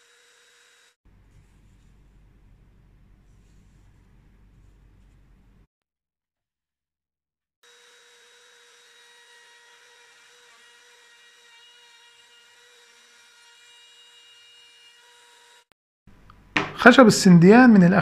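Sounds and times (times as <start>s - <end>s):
wood router motor whine: 0.0s - 1.0s, 7.6s - 15.7s.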